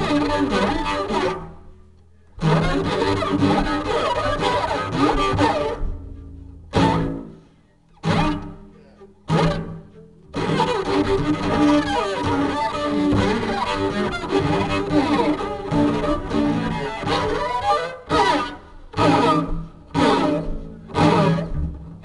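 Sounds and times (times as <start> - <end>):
free jazz music: 0.0 - 21.6.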